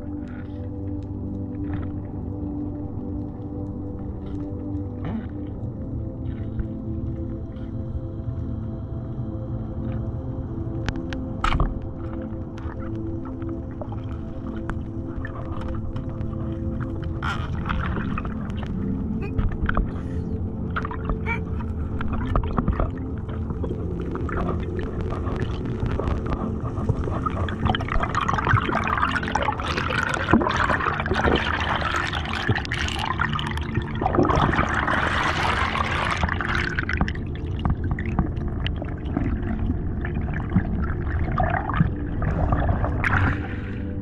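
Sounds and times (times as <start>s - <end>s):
underwater low rumble: 0.0s - 44.0s
air bubbles rushing: 11.5s - 44.0s.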